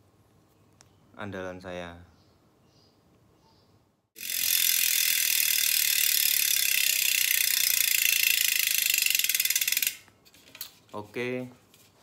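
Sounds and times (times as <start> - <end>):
bicycle freehub ratcheting: 4.2 - 10.1.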